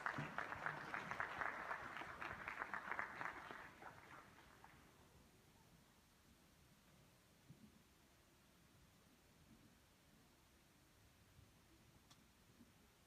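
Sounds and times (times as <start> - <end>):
audience applause: 0.0 - 5.0.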